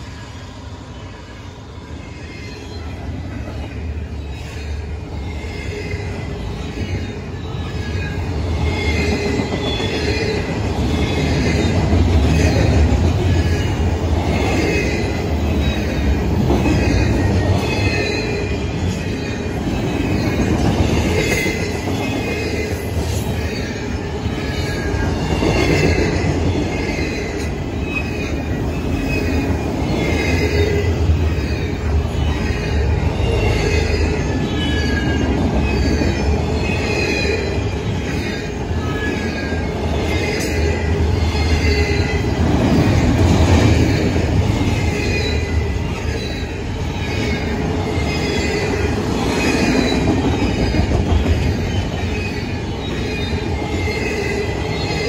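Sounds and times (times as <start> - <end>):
freight train rumbling past: 0.0 - 55.0
train wheel squeal: 0.0 - 55.0.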